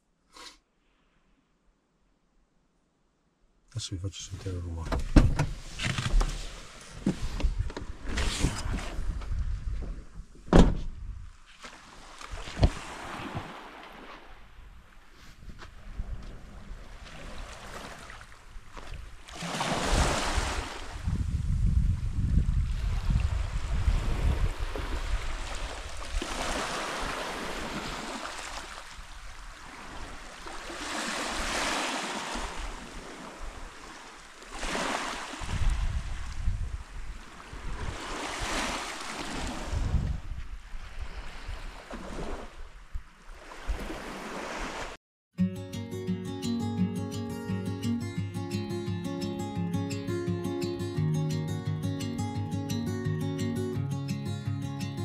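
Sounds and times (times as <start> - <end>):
wind rumbling on microphone: 5.0 - 11.4, 19.9 - 26.4, 35.4 - 38.6, 39.2 - 44.0
sharp thump: 10.5 - 11.0
small waves washing on shore: 11.5 - 21.1, 22.5 - 45.0.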